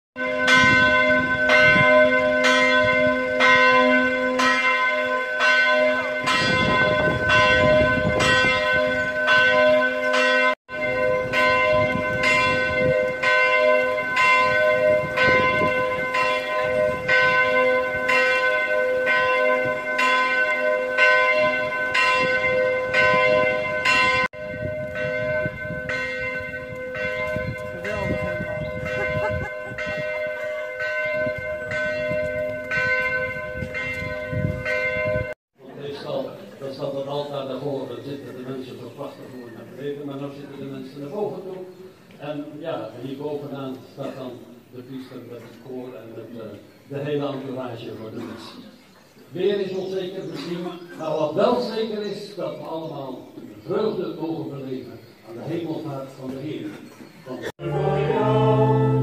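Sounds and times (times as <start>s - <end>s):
church bell tolling: 0.2s - 35.4s.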